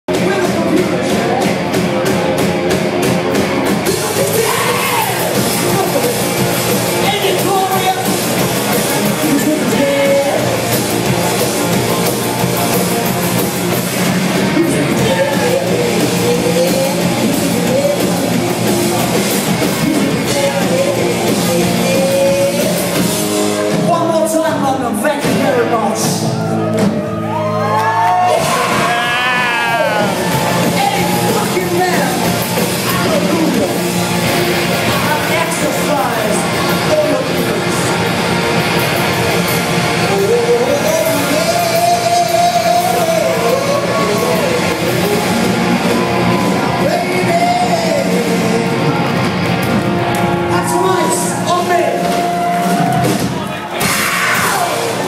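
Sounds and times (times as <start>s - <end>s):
drums: 0.0s - 55.0s
electric guitars: 0.1s - 55.0s
loud singing: 0.3s - 23.3s, 27.3s - 55.0s.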